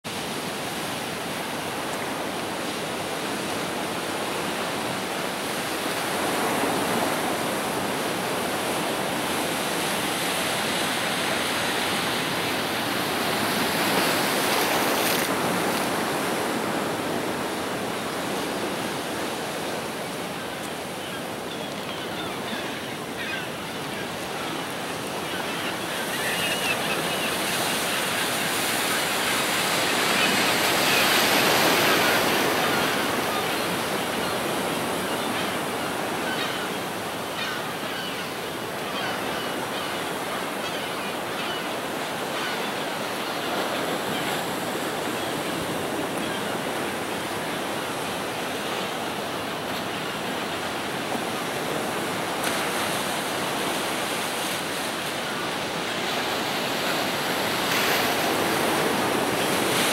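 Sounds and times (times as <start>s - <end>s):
ocean surf breaking on rocks: 0.1s - 21.8s, 22.4s - 37.6s, 41.8s - 59.9s.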